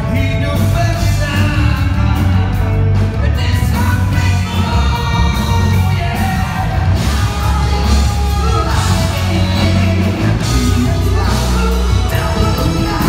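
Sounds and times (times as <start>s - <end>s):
electric guitar: 0.0s - 13.0s
heavy driving bass: 0.0s - 13.0s
man singing: 0.0s - 13.0s.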